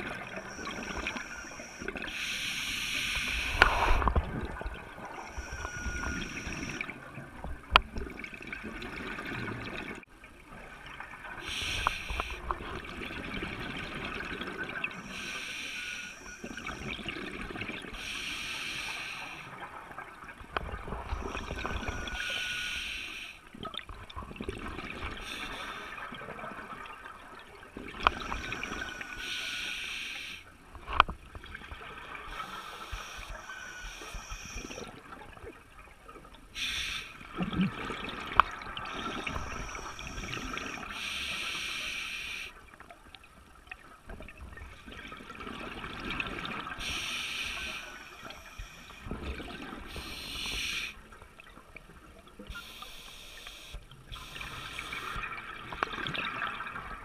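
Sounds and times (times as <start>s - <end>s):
regulator hissing breaths: 0.3s - 4.1s, 11.4s - 12.4s, 15.0s - 16.4s, 18.0s - 19.5s, 21.3s - 23.4s, 25.2s - 26.0s, 28.2s - 30.4s, 32.3s - 34.8s, 36.6s - 37.2s, 38.9s - 42.6s, 46.8s - 49.1s, 49.9s - 51.0s, 52.5s - 55.2s.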